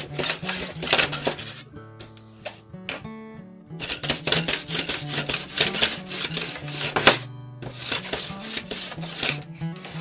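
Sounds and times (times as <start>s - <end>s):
hand plane scraping bamboo: 0.0s - 1.6s, 3.8s - 10.0s
background music: 0.0s - 10.0s.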